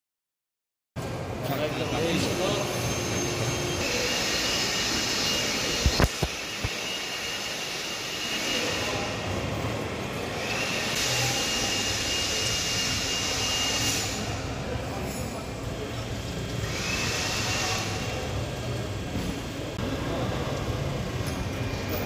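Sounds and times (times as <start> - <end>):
tilt table motor whining: 2.0 - 9.2, 16.5 - 18.3.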